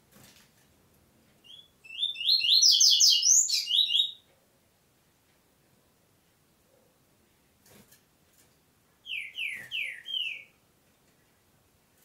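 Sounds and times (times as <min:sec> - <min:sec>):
bird singing whistled notes: 0:01.4 - 0:04.2, 0:09.0 - 0:10.6.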